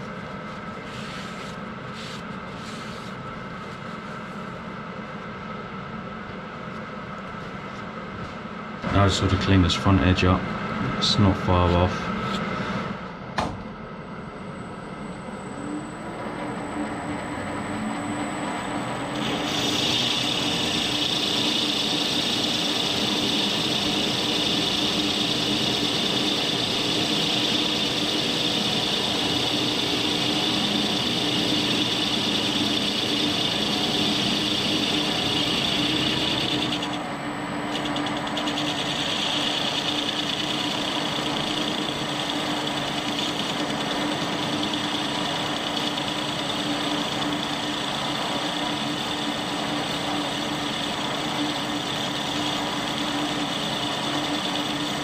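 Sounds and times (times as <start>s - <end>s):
metal lathe motor and gear hum: 14.9s - 55.0s.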